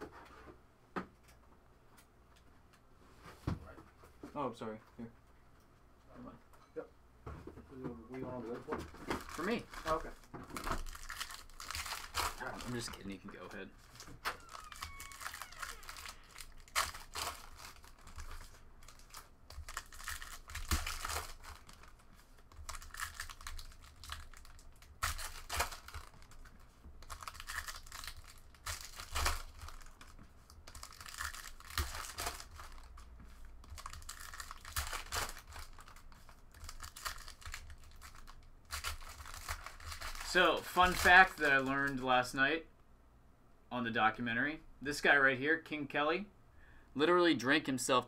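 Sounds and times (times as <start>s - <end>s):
cards rustling and clicking: 8.8s - 42.0s
wrappers tearing and crinkling: 8.9s - 42.0s.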